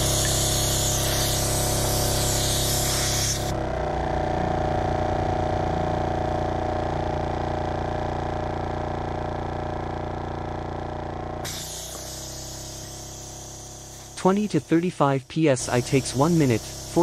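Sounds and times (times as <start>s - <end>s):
air hissing from hose: 0.0s - 3.5s, 11.4s - 14.9s, 15.6s - 17.0s
air compressor humming: 0.0s - 17.0s.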